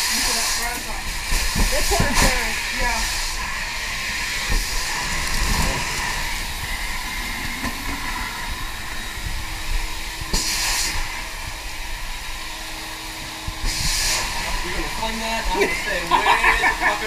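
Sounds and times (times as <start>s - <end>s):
steady hissing noise: 0.0s - 17.0s.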